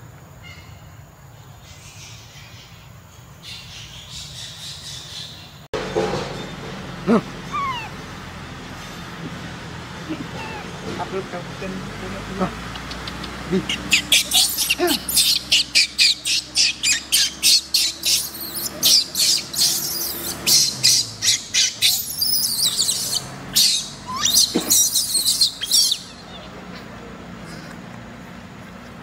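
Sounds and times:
baby monkey screaming: 0:07.4 - 0:08.0, 0:10.1 - 0:10.8, 0:13.6 - 0:26.9.

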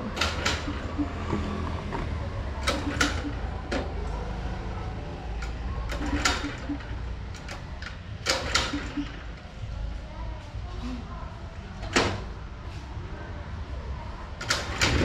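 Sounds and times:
sharp clicks: 0:02.6 - 0:03.5.

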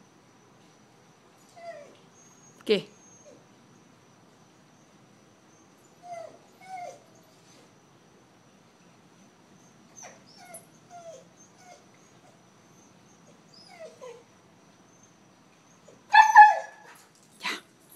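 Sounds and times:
dog whining softly: 0:01.4 - 0:03.5, 0:05.5 - 0:07.8, 0:09.6 - 0:17.1
dog yowling: 0:16.1 - 0:16.9.

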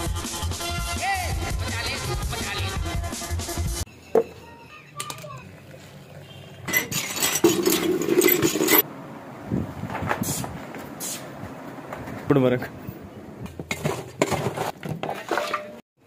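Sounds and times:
metal milk cans clinking: 0:06.7 - 0:08.8, 0:13.6 - 0:15.8.

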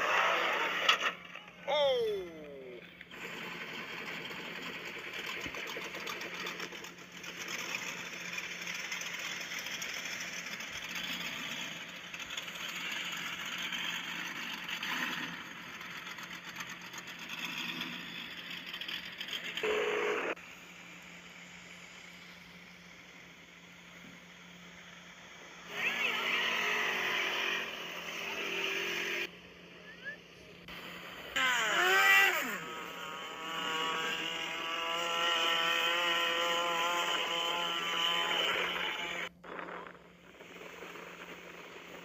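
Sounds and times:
truck engine running hard: 0:02.3 - 0:31.3
fast steady rattle: 0:03.1 - 0:19.6, 0:39.2 - 0:42.0.

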